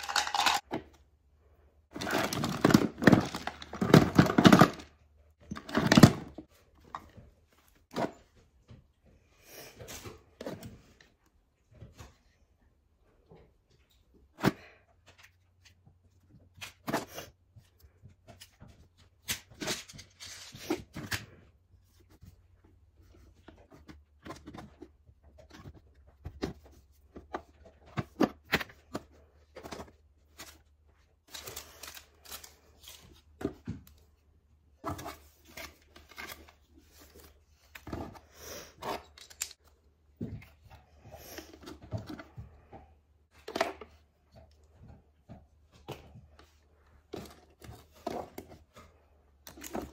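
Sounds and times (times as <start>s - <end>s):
plastic items clacking on wood: 0.0s - 1.0s, 1.9s - 7.1s.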